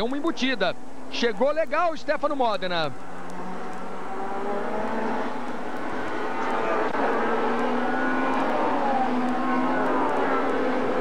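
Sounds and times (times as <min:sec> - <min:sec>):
race car engines at high revs: 0:02.9 - 0:11.0.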